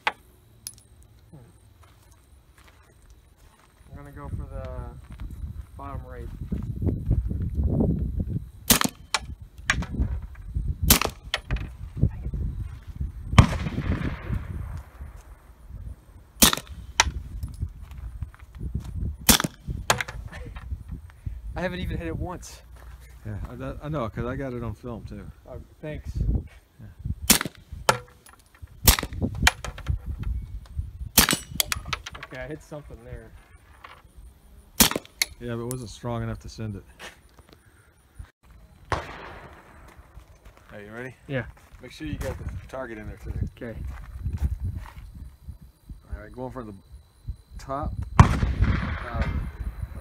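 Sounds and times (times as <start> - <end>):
pistol shots: 8.7 - 9.2, 10.9 - 11.3, 13.4 - 14.8, 16.4 - 17.2, 19.3 - 20.1, 27.3 - 28.2, 28.8 - 29.2, 31.2 - 31.8, 34.8 - 35.3, 38.9 - 39.9, 48.2 - 49.4
handgun shots hitting steel: 8.7 - 9.3, 16.4 - 17.2, 27.3 - 29.7, 31.2 - 32.0.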